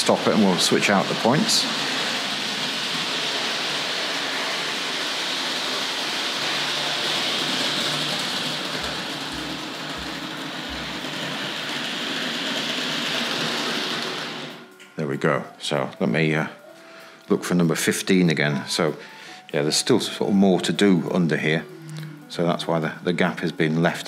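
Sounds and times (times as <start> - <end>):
model train whirring on metal track: 0.0 - 14.8.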